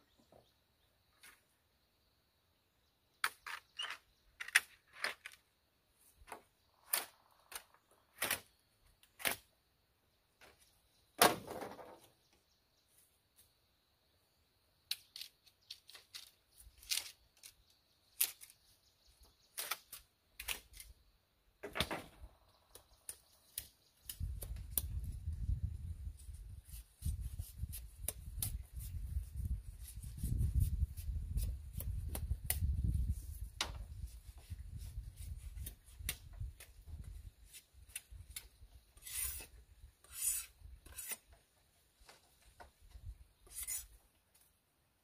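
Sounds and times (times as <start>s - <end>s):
bamboo cracking and snapping: 9.0s - 9.5s.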